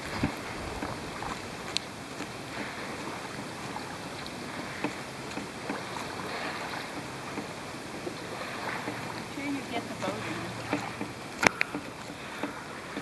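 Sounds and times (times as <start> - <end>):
river water lapping: 0.0 - 13.0
small splashes: 0.0 - 13.0
faint clicks: 10.5 - 13.0.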